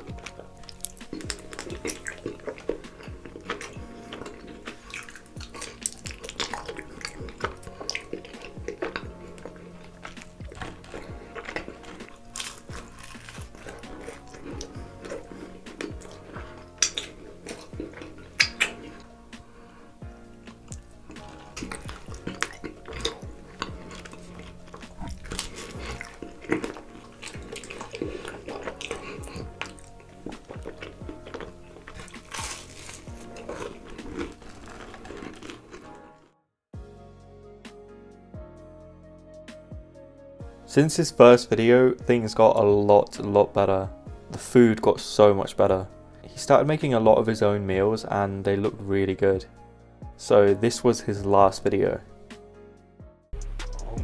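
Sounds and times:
man chewing with sticky clicks: 0.0 - 19.2, 20.3 - 36.2
faint background music: 0.0 - 54.0
low bass thud: 53.4 - 54.0.

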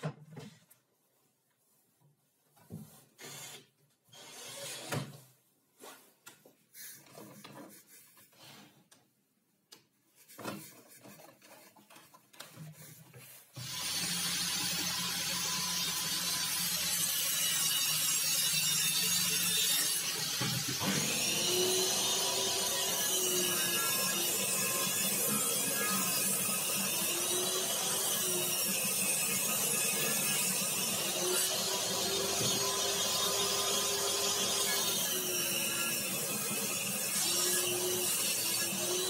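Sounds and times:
table saw running: 13.6 - 39.0.

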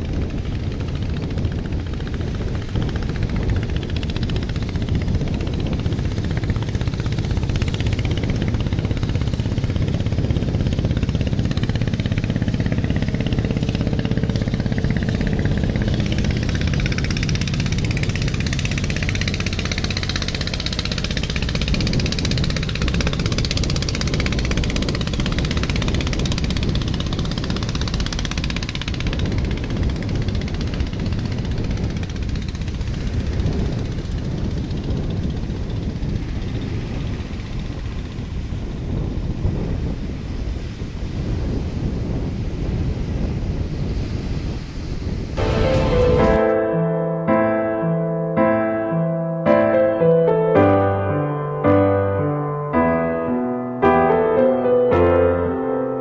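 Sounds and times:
sea waves: 44.6 - 47.8.

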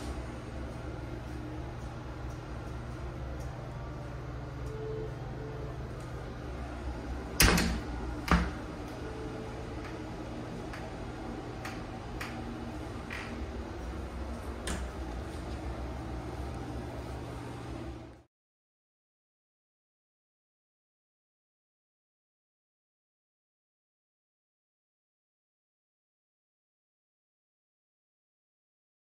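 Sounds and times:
steady low hum: 0.0 - 18.3.

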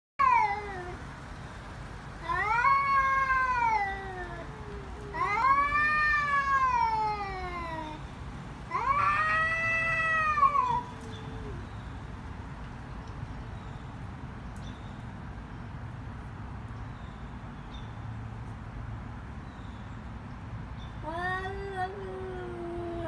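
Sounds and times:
cats yowling: 0.2 - 1.0, 2.2 - 8.0, 8.7 - 11.8.

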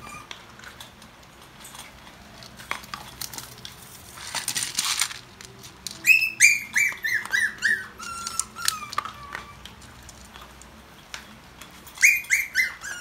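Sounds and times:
high-pitched puppy yelps: 0.0 - 0.3, 6.0 - 9.8, 12.0 - 13.0
puppies scuffling: 0.0 - 13.0.

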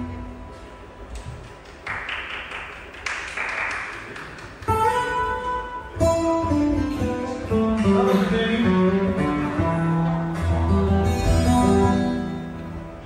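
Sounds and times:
saz and guitar melody: 4.7 - 13.0.

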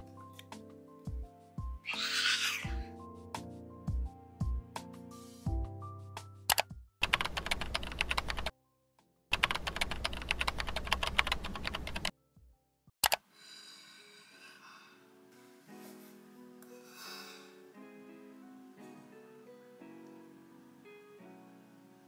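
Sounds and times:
soft music: 0.0 - 22.0
rapid keyboard typing: 6.5 - 8.5, 9.3 - 12.1.

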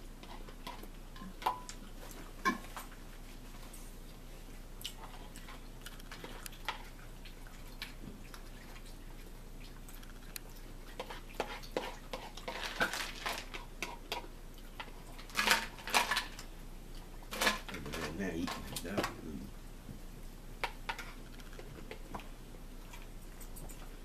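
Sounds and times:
chewing: 3.6 - 19.5, 20.9 - 24.0.

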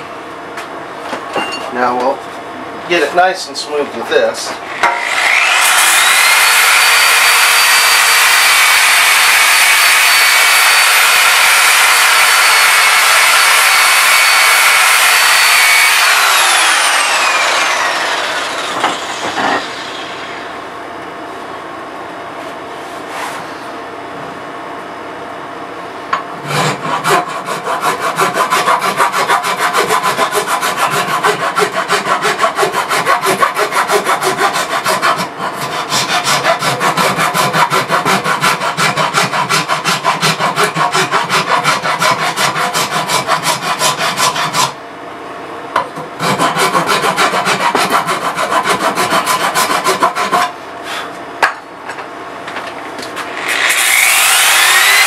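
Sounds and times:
angle grinder on wood: 4.7 - 20.4, 26.4 - 44.8, 46.2 - 50.5, 53.3 - 55.0
hand rasp scraping wood: 5.0 - 18.5, 26.4 - 44.8, 46.2 - 51.1, 53.6 - 55.0.

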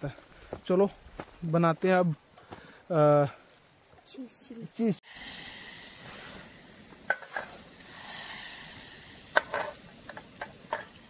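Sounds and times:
butter sizzling in a pan: 5.1 - 11.0
utensil clinking and scraping pan: 7.1 - 7.6.

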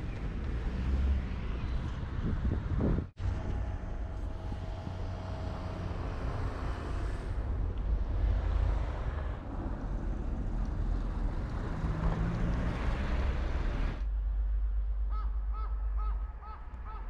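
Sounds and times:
passing traffic: 0.0 - 17.0
wind rumble on microphone: 0.0 - 17.0
bird calling: 15.1 - 17.0.

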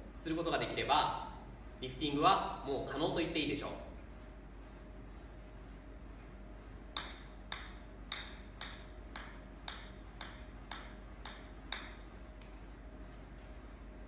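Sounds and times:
golf ball bouncing on club face: 7.0 - 12.0.

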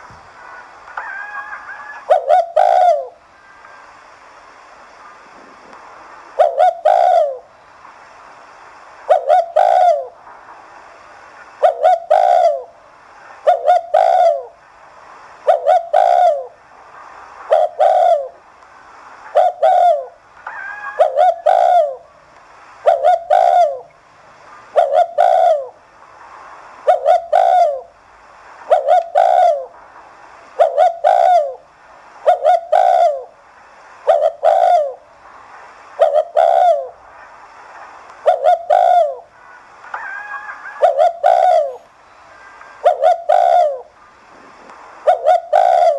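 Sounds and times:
dove cooing: 0.0 - 3.2, 6.3 - 7.5, 9.1 - 10.2, 11.6 - 12.8, 13.4 - 14.6, 15.4 - 16.6, 17.5 - 18.4, 19.3 - 22.1, 22.8 - 23.9, 24.7 - 25.8, 26.8 - 27.9, 28.6 - 29.7, 30.6 - 33.4, 34.0 - 35.0, 36.0 - 37.0, 38.2 - 39.3, 39.9 - 45.9.

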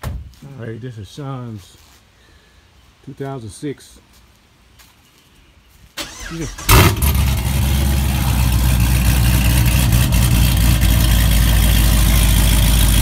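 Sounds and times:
car engine revving then idling: 6.0 - 13.0.

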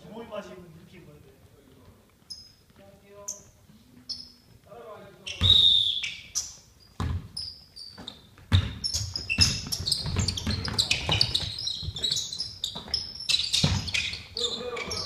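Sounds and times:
sneakers squeaking: 2.1 - 15.0
basketball bouncing on hardwood: 7.0 - 7.4, 8.0 - 14.2.

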